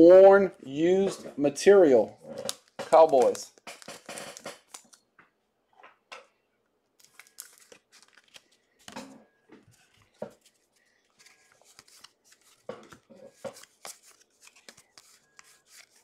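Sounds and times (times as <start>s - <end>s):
cards and packaging crinkling: 2.4s - 5.0s, 7.0s - 9.0s, 9.6s - 16.0s.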